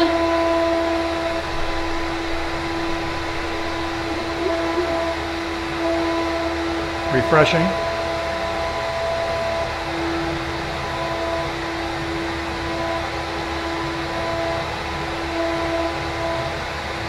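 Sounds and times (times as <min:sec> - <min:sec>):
high tone: 0:00.0 - 0:09.6
cnc router whirring: 0:00.0 - 0:17.0.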